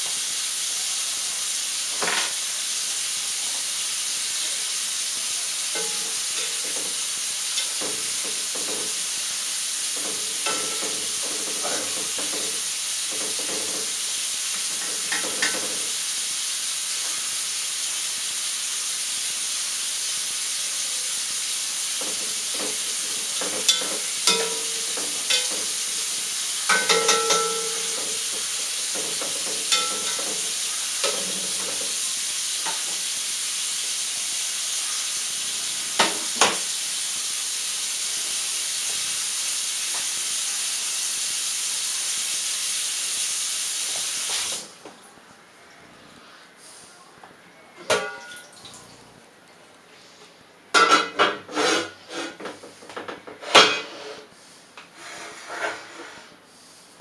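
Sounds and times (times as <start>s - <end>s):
tap water running into sink: 5.7s - 16.0s, 21.9s - 34.0s, 43.8s - 45.1s
spoon clinking against pot: 5.8s - 6.8s, 10.4s - 11.0s, 23.4s - 25.9s, 26.7s - 31.6s.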